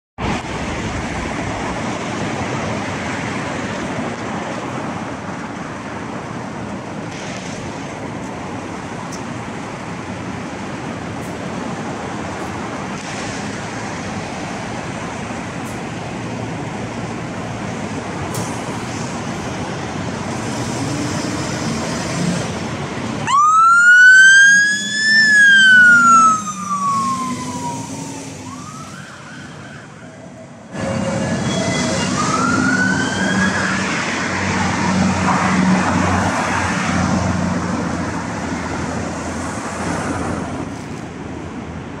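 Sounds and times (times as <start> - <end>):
siren wailing: 23.2 - 35.2.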